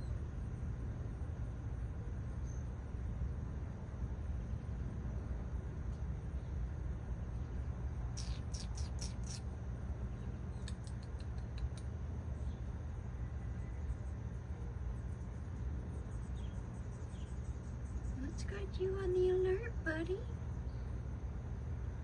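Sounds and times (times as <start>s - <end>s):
steady low rumble: 0.0s - 22.0s
faint bird ticks: 8.1s - 12.6s.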